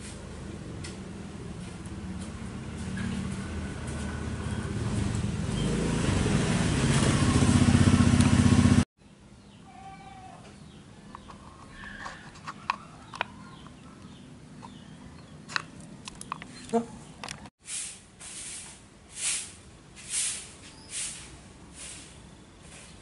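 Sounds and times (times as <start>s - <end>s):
vehicle engine running: 0.2s - 8.9s.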